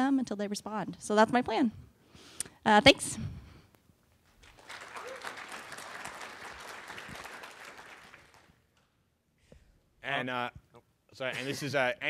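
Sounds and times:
audience applauding: 4.4s - 8.6s.

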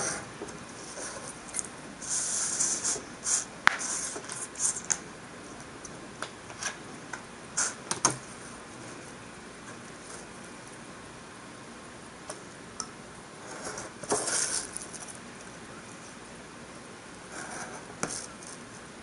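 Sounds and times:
paper sliding and rustling: 13.5s - 15.2s.

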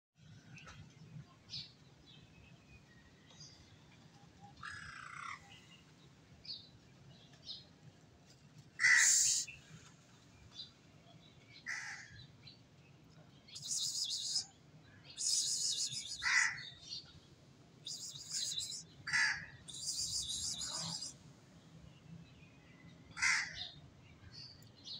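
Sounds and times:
crows cawing: 8.8s - 9.3s, 16.2s - 16.6s, 19.1s - 19.5s, 23.2s - 23.6s
faint bird chirps: 8.9s - 9.7s, 13.5s - 16.8s, 17.9s - 19.0s, 19.7s - 21.2s.

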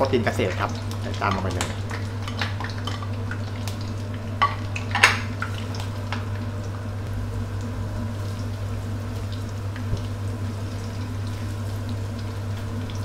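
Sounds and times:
food sizzling in oil: 0.0s - 13.0s
low hum: 5.4s - 13.0s.

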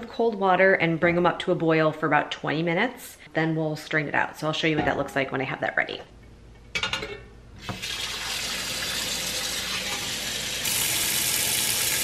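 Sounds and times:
water running into pot: 7.6s - 12.0s.

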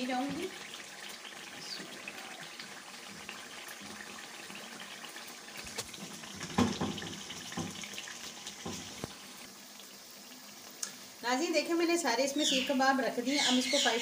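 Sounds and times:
gravy bubbling and sizzling: 0.0s - 14.0s.

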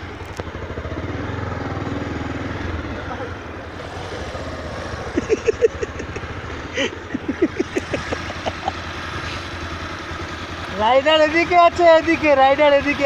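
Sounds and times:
motorcycle engine running: 0.0s - 13.0s
sharp engine blips: 0.8s - 9.8s.

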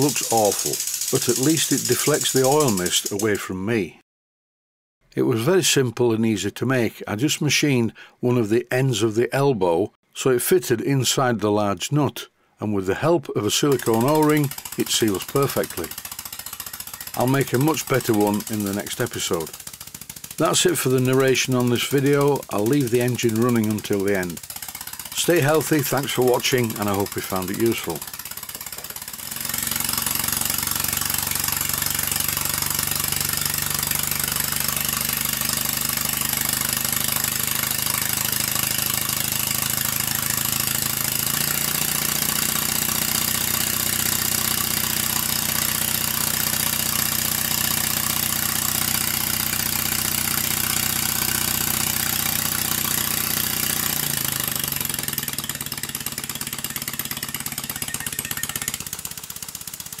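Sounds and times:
exhaust air hissing: 0.0s - 3.4s, 13.6s - 57.8s
model steam engine running: 0.0s - 3.4s, 13.5s - 60.0s.

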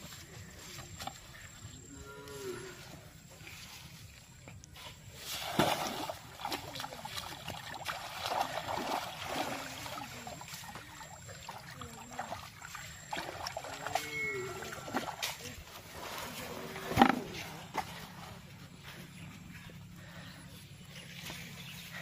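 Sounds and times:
water sloshing and splashing: 3.3s - 18.9s.

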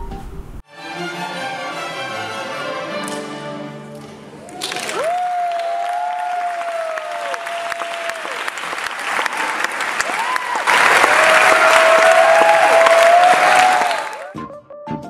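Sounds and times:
crowd cheering: 4.3s - 14.4s
audience applauding: 4.4s - 14.4s.

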